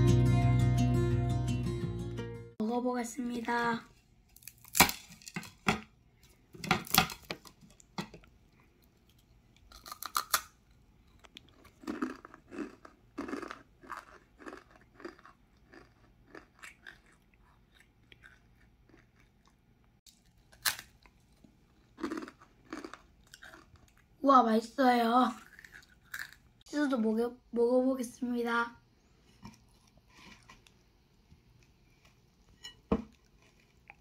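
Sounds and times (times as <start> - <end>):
dry noodles snapping: 4.4 - 5.6, 9.7 - 10.6
crunching and chewing noodles: 6.9 - 24.2, 25.3 - 26.6, 33.1 - 34.0.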